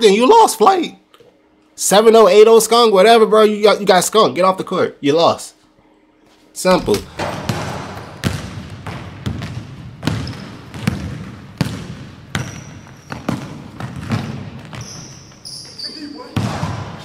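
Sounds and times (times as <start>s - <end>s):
basketball bouncing on hardwood floor: 6.8s - 15.1s.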